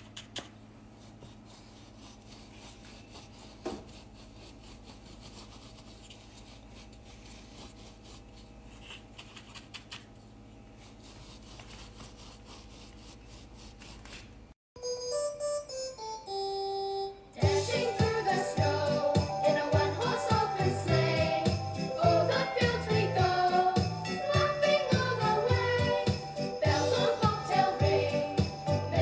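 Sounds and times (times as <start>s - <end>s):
light rubbing and scratching strokes: 0.8s - 14.3s.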